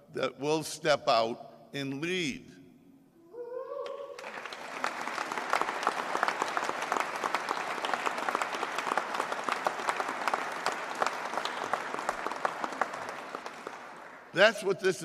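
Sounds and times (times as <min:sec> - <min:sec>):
crowd applauding: 0:03.9 - 0:14.5.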